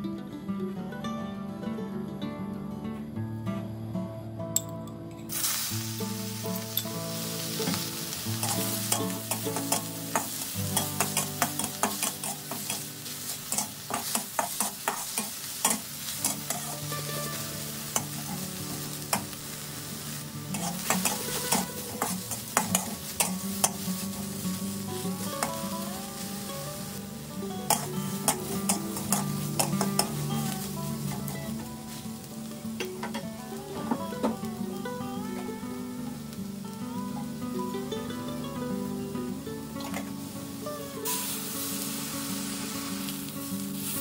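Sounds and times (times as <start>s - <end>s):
shrimp sizzling in a wok: 5.3s - 44.0s
spatula clicking against pan: 8.4s - 12.9s, 13.5s - 16.7s, 20.5s - 23.8s, 27.7s - 30.2s
metal spatula scraping: 8.4s - 18.4s, 20.5s - 24.2s.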